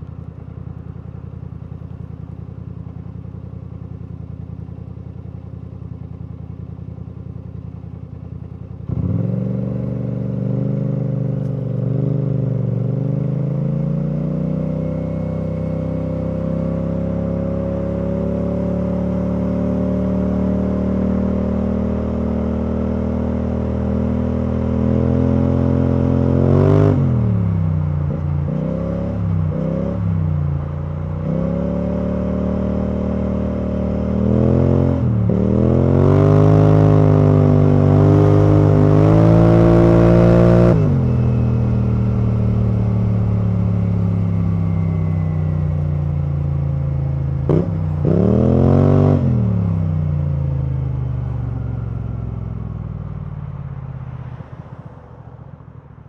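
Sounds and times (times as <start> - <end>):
scooter engine revving while riding: 8.8 - 27.6, 31.2 - 41.3, 47.5 - 49.9.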